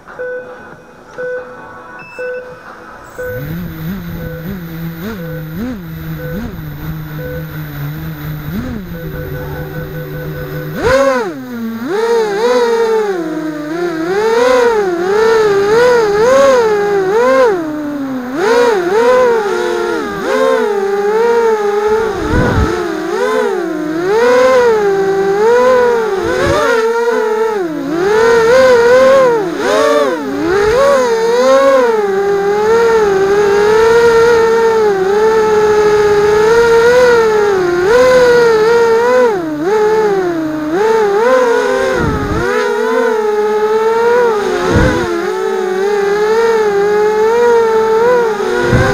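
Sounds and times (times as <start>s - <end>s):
drone motors whining: 3.0s - 48.9s.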